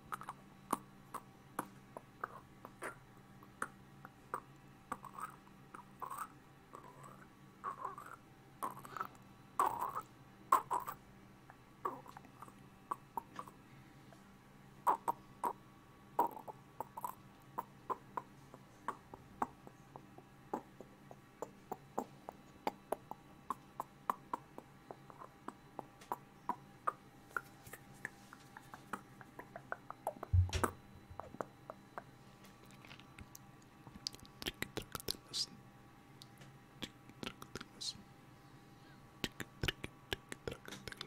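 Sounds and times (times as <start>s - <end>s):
deep thump: 30.4s - 30.7s
mouth pops and tongue clicks: 32.7s - 35.2s, 39.2s - 41.0s.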